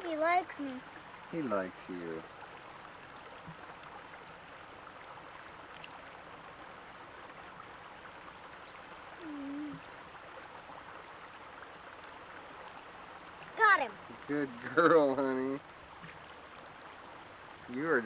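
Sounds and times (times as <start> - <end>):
creek water trickling: 0.0 - 18.0
murmured voice: 9.2 - 9.8.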